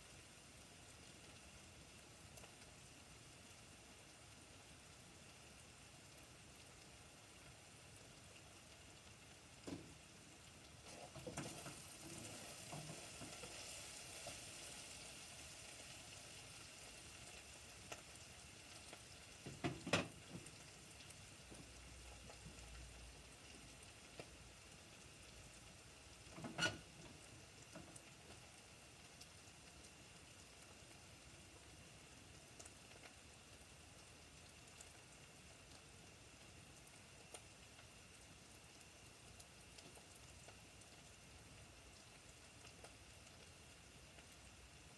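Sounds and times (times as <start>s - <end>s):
food sizzling in a pot: 0.0s - 44.9s
stirring noises: 10.8s - 13.6s.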